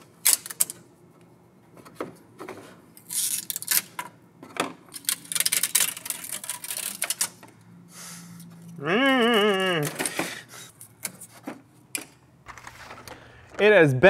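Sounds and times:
plastic parts clicking and clattering: 0:00.2 - 0:00.8, 0:01.8 - 0:07.5, 0:09.8 - 0:13.8.

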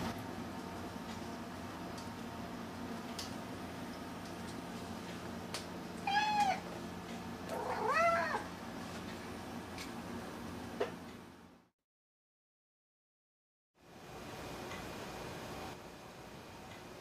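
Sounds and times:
cat meowing: 0:06.0 - 0:06.7, 0:07.5 - 0:08.5.

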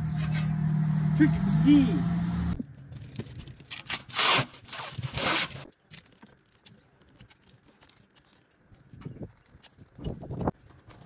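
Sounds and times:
plastic film rasping rubs: 0:03.6 - 0:10.5.

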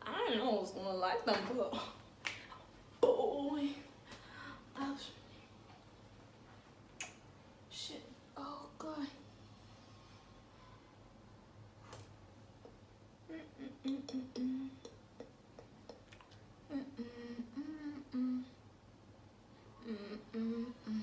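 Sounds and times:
woman humming: 0:13.2 - 0:18.6, 0:19.7 - 0:21.0.

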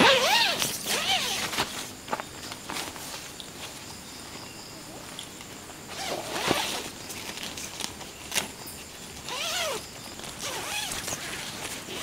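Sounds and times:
tent zipper rasping: 0:00.0 - 0:01.8, 0:05.9 - 0:06.9, 0:09.2 - 0:12.0.

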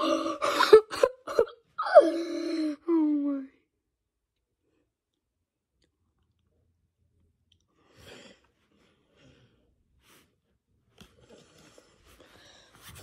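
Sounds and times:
soft breath: 0:07.7 - 0:13.0.

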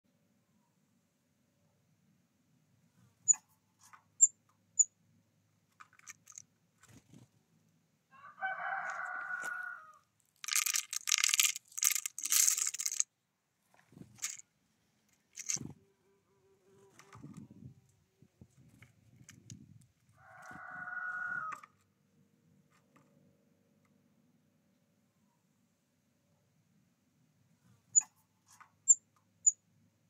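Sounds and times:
seeds rattling into wooden tray: 0:05.8 - 0:07.0, 0:10.3 - 0:13.1, 0:14.0 - 0:14.4, 0:15.2 - 0:15.6.

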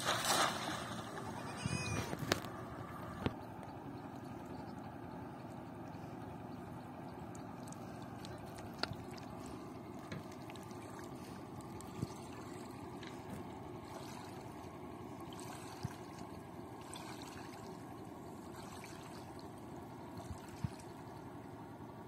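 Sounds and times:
hand net drawn through water: 0:00.0 - 0:01.2
shallow river water trickling: 0:00.0 - 0:22.0.

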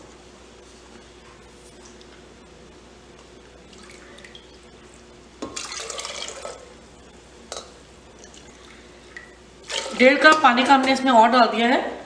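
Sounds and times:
water splashing into a pot: 0:05.5 - 0:06.6, 0:09.2 - 0:10.1.

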